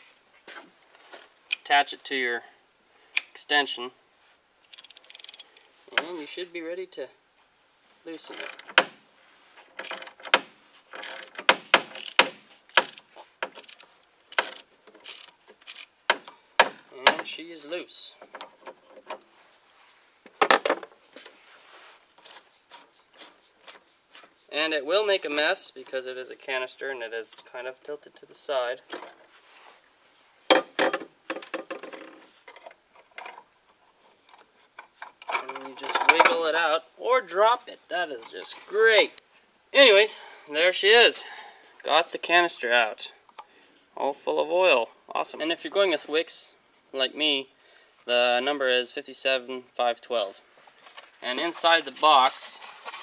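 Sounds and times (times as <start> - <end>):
socket ratchet ratcheting: 4.7 - 5.6, 8.3 - 8.9, 9.8 - 16.3
clicks and scraping rattles: 4.7 - 6.1, 8.2 - 9.0, 9.6 - 17.3, 18.2 - 19.3, 30.5 - 36.5, 50.8 - 53.0.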